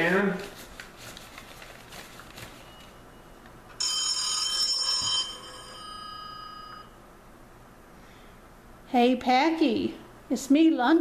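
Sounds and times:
telephone ringing: 0:02.7 - 0:07.0.

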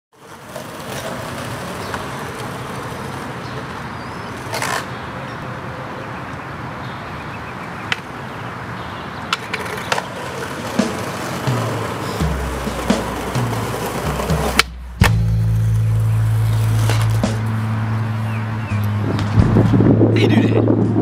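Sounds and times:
outdoor street noise: 0:00.1 - 0:21.0.

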